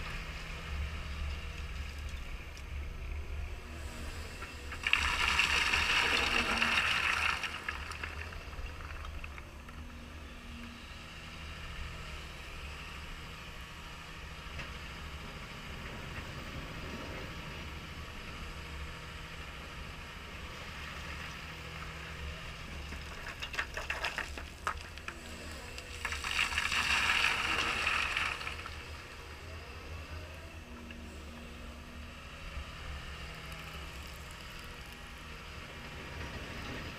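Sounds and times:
excavator diesel engine: 0.0s - 36.9s
stones rattling and pouring: 4.7s - 9.4s, 22.9s - 25.1s, 25.8s - 29.0s.

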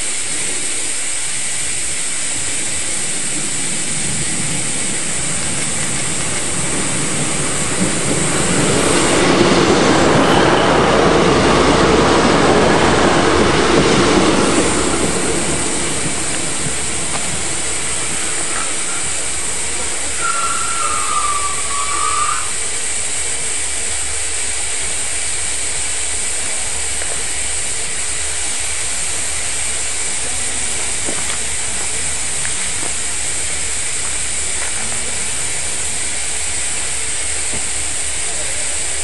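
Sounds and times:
steam hissing from train: 0.0s - 39.0s
short wavering whistle tone: 20.2s - 22.6s.

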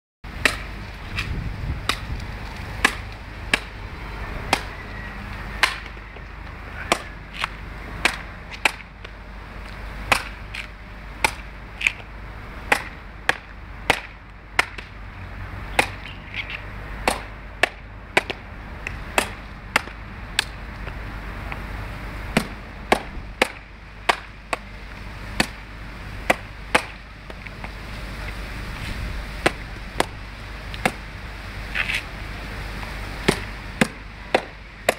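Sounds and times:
machete chopping coconut husk: 0.3s - 3.8s, 4.4s - 6.2s, 6.8s - 8.9s, 10.0s - 15.0s, 15.7s - 20.6s, 22.3s - 24.7s, 25.4s - 27.5s, 29.4s - 30.2s, 30.8s - 31.1s, 33.2s - 34.9s.

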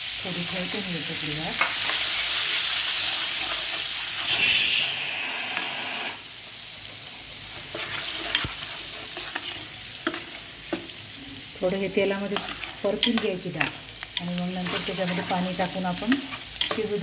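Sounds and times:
lentils sizzling in oil: 0.0s - 17.0s
steel spoon scraping a pan: 1.6s - 6.1s, 7.6s - 11.0s, 12.2s - 17.0s.

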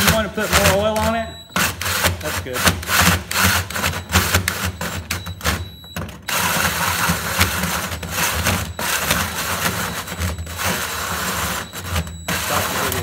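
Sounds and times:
drill hole saw cutting metal: 0.0s - 5.1s, 6.3s - 13.0s.

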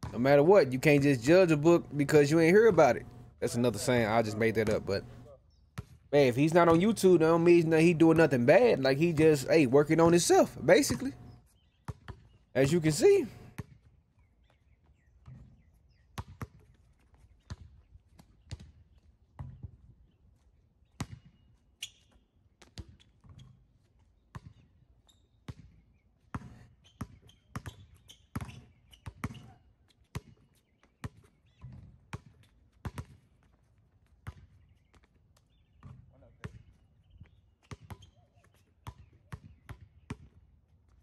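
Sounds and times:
basketball bouncing on concrete: 0.0s - 5.2s, 5.8s - 13.8s, 16.2s - 16.7s, 19.4s - 19.8s, 22.6s - 23.6s, 24.3s - 24.6s, 25.5s - 25.7s, 26.3s - 30.4s, 31.0s - 33.5s, 34.2s - 38.2s, 38.8s - 40.4s.

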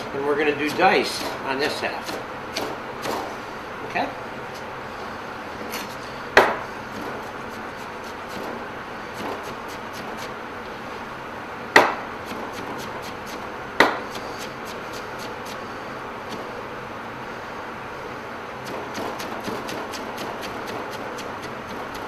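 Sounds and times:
knife chopping on cutting board: 0.8s - 1.4s, 2.0s - 3.3s, 5.7s - 8.6s, 9.2s - 10.4s, 11.8s - 15.6s, 18.6s - 22.0s
loud knocks on cutting board: 6.4s - 6.6s, 11.8s - 12.0s, 13.8s - 14.0s.

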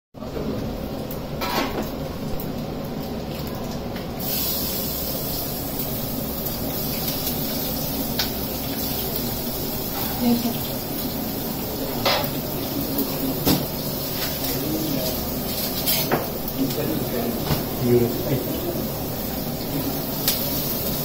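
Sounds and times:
pots and utensils clinking: 1.4s - 2.0s, 9.8s - 10.6s, 11.9s - 18.6s
steady high hiss: 4.2s - 21.0s.

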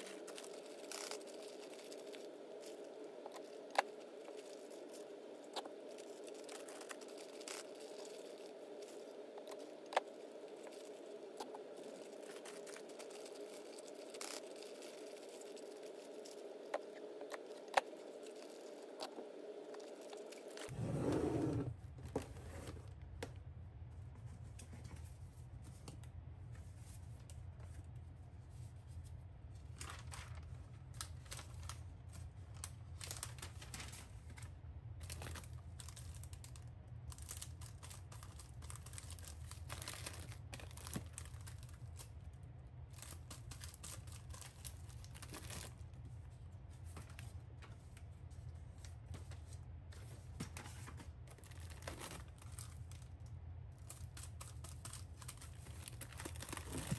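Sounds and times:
plastic bags crinkling: 0.0s - 20.7s, 29.8s - 46.0s, 48.9s - 56.9s
low hum: 0.0s - 22.2s.

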